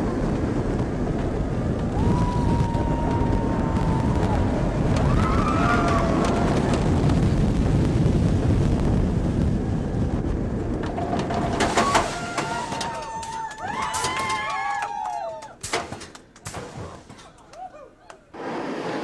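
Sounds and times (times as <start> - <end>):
wind rushing over microphone: 0.0 - 13.2
roller coaster rumbling on track: 0.0 - 19.0.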